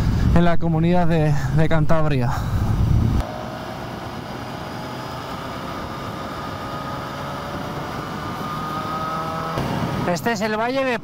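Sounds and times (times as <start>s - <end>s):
engine whine: 2.5s - 10.6s
motorcycle engine running: 2.6s - 10.1s.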